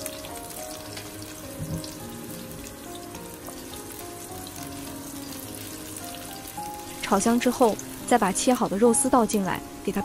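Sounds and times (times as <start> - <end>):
background music: 0.0 - 10.0
garlic sizzling in a wok: 0.0 - 10.0.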